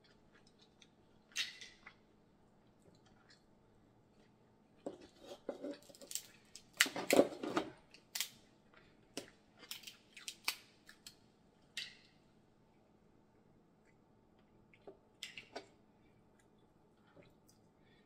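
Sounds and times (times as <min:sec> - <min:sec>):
crab shells cracking by hand: 0:05.8 - 0:07.1, 0:08.0 - 0:08.4, 0:09.2 - 0:11.2.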